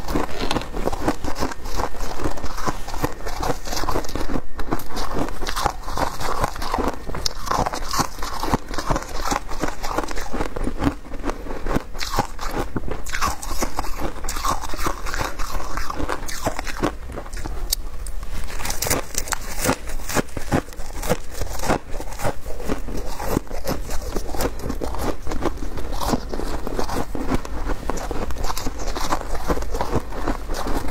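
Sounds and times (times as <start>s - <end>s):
shaved ice crunching: 18.5s - 30.9s.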